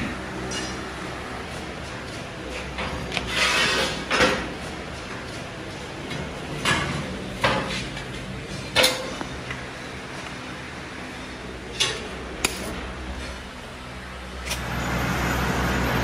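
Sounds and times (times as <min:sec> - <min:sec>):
iron wire coil scraping and clanking: 0:02.5 - 0:04.4.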